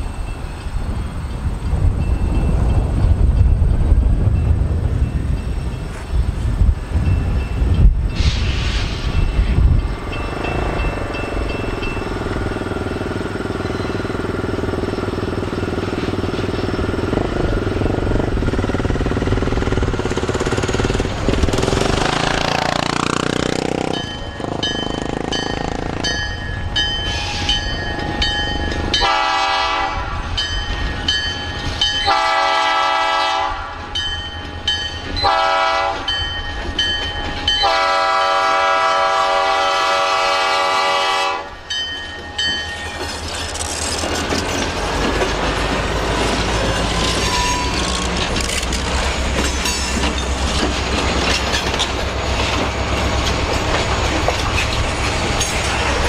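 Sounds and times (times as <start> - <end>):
locomotive rumbling: 0.0 - 56.0
train air horn blasts: 29.0 - 30.3, 32.0 - 33.8, 35.2 - 36.1, 37.6 - 41.6.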